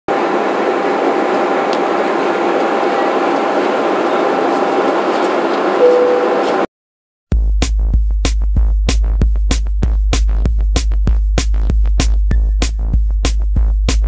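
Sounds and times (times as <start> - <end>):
airliner cabin air and engine noise: 0.1 - 6.7.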